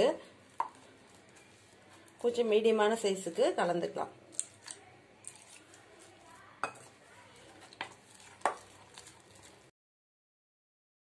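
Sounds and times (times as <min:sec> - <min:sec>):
batter being stirred: 0:00.0 - 0:09.7
spatula clinking on glass: 0:06.6 - 0:06.9.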